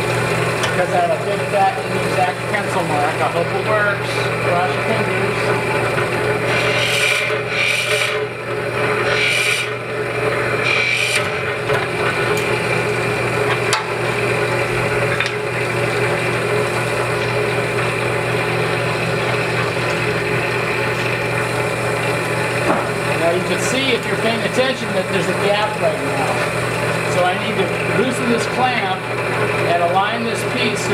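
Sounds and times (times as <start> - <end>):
electric motor humming: 0.0 - 30.9
drill bit rasping into wood: 6.4 - 8.3, 9.0 - 9.8, 10.6 - 11.5.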